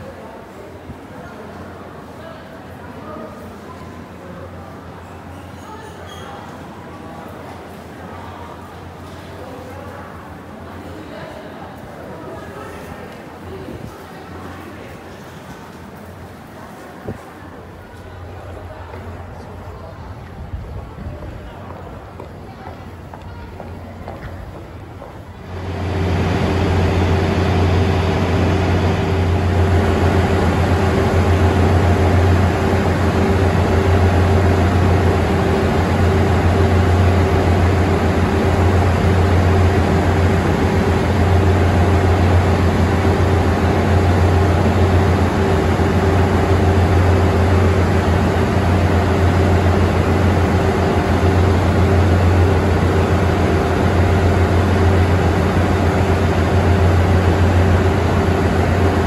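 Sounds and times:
diesel train engine idling: 17.8 - 59.0.

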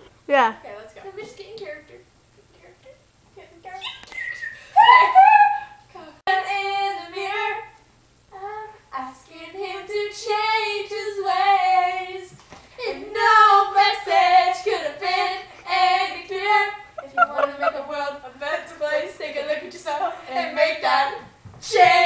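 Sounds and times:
young female voices singing: 4.8 - 22.0.

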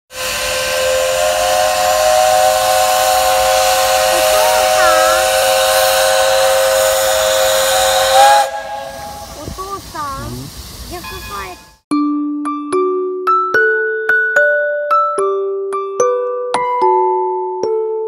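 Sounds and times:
steam locomotive whistle: 0.1 - 9.5
steam hissing: 0.1 - 11.8.

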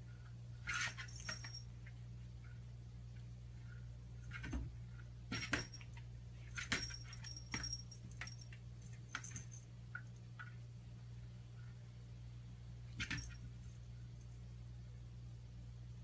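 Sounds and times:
cat collar bell jingling: 6.6 - 9.7.

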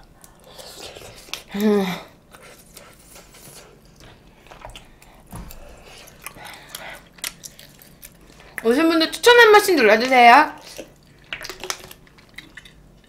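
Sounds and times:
person chewing food: 0.0 - 8.6, 10.6 - 13.0
mouth clicks and smacks: 10.7 - 12.8.

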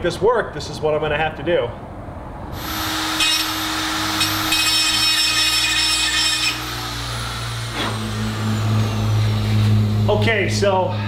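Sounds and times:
spiral saw whining: 2.6 - 11.0.

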